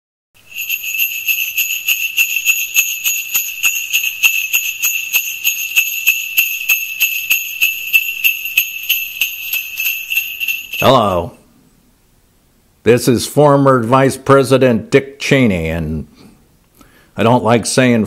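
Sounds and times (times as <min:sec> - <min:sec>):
jingle bells shaking: 0:00.4 - 0:11.4.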